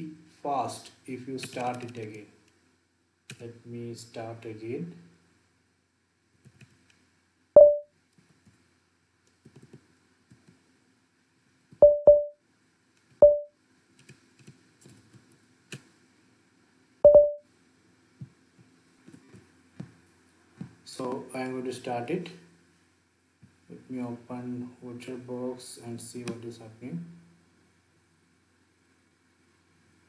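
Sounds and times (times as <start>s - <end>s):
short pitched beeps: 7.6s - 7.8s, 11.8s - 12.3s, 13.2s - 13.5s, 17.1s - 17.4s
keyboard typing clicks: 11.8s - 12.3s, 13.2s - 14.2s, 17.1s - 17.4s.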